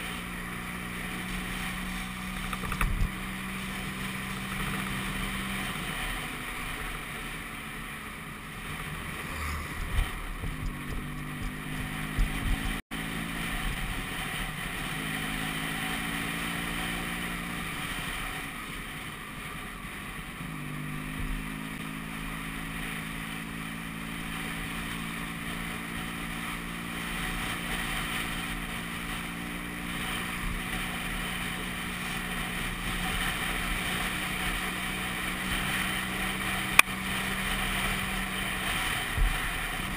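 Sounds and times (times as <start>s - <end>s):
scooter engine running: 0.0s - 39.9s
wind noise on microphone: 1.2s - 5.6s, 8.8s - 12.8s, 13.4s - 14.8s.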